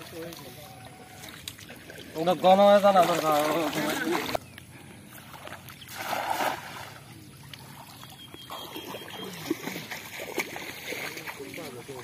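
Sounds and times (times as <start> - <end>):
water sloshing: 0.0 - 12.0
net splashing into water: 5.3 - 7.0, 7.6 - 11.5.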